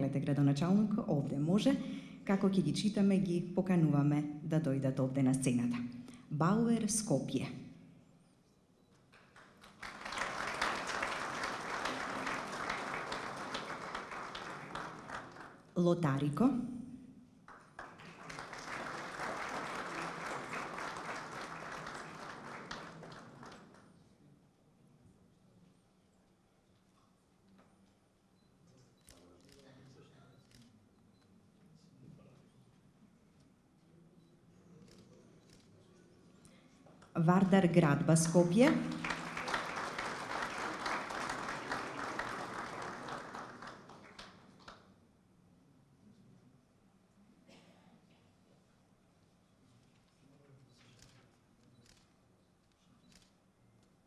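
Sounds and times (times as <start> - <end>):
audience applauding: 9.3 - 15.7, 17.5 - 23.9, 38.4 - 44.8.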